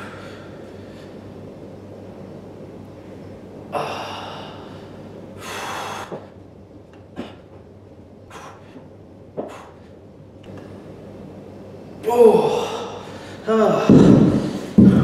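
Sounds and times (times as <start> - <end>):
man breathing hard: 0.0 - 1.3, 3.8 - 6.4, 8.3 - 10.1, 12.5 - 15.0.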